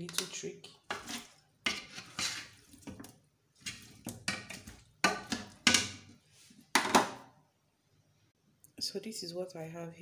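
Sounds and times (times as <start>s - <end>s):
ladle splashing and knocking in pot: 0.9s - 6.1s.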